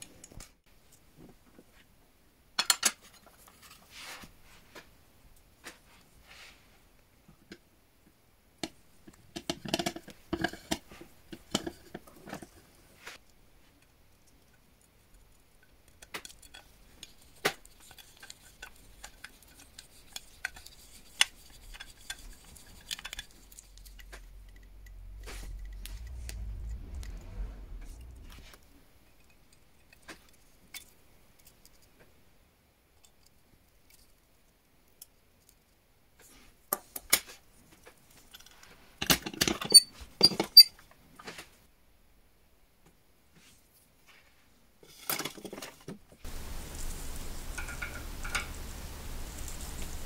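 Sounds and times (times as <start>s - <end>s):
low rumble: 23.5s - 29.0s.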